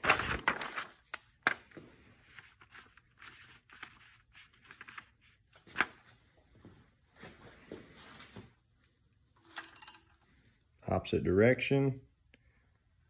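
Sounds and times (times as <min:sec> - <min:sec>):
paper sheets handled: 0:00.0 - 0:06.2.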